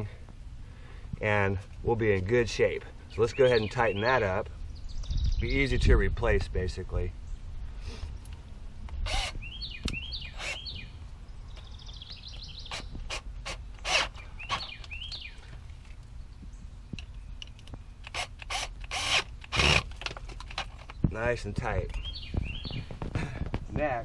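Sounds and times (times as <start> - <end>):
cordless drill driving screws: 9.0 - 9.4, 10.4 - 10.6, 12.7 - 14.7, 18.0 - 20.1
clicking and rattling: 17.0 - 21.0.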